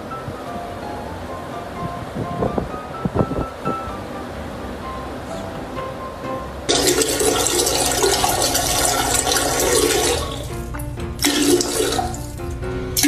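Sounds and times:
toilet flushing: 6.7s - 13.0s.

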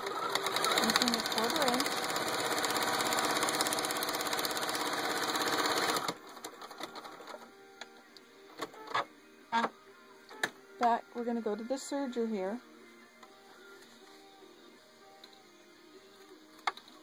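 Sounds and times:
sewing machine running fast: 0.0s - 6.2s.

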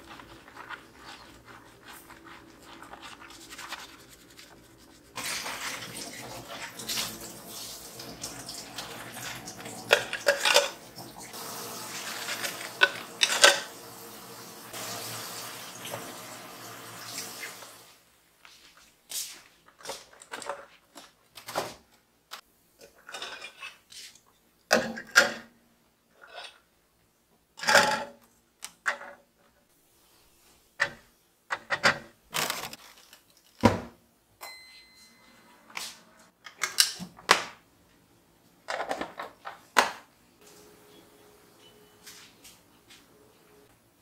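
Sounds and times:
plastic and glass items clattering: 8.9s - 10.8s, 12.0s - 13.7s, 19.7s - 21.8s, 31.6s - 33.9s.

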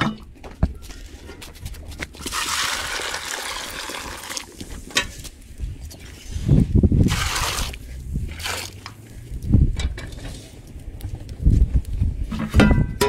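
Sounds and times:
water pouring into metal pot: 2.2s - 4.6s.

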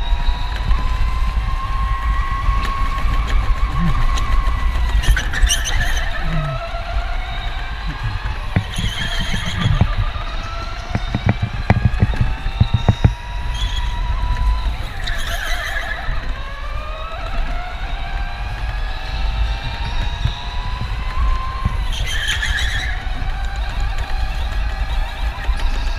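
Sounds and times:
electric go-kart motor whining: 0.0s - 25.9s
low kart rumble: 0.0s - 25.9s
sharp knocks: 7.9s - 10.2s, 10.8s - 13.2s.

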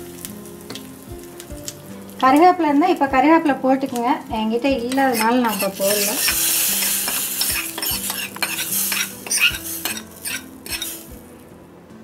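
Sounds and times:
hot ghee sizzling: 0.0s - 11.7s
metal clinking against pot: 4.9s - 11.0s.

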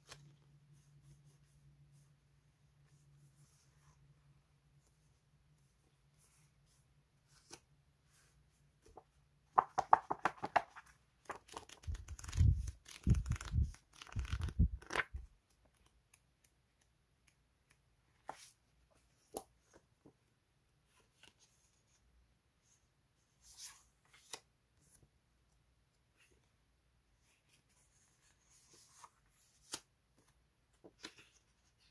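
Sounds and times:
paper rustling: 6.7s - 16.0s
paper pages riffling: 11.3s - 15.2s.

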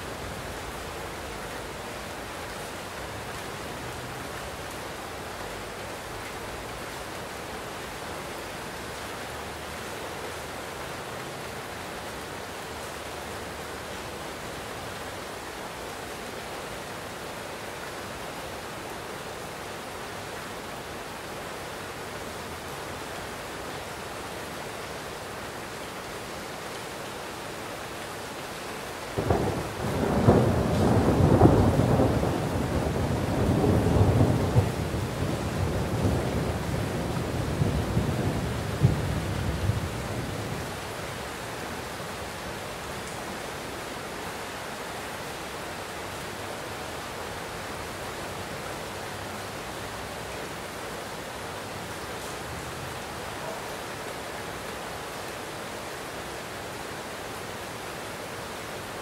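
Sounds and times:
heavy rain: 0.0s - 59.0s
thunder rumbling: 29.2s - 40.3s.

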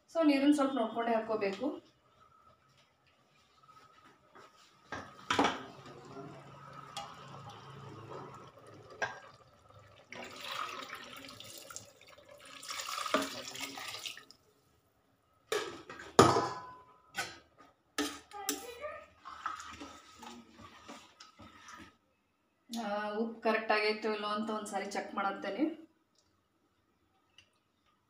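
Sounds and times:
water pouring and splashing: 5.0s - 14.4s, 19.2s - 22.0s.

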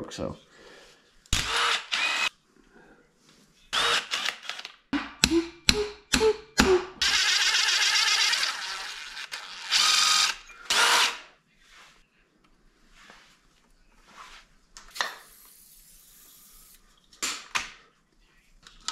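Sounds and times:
cordless power driver running: 1.4s - 2.3s, 7.0s - 11.1s.

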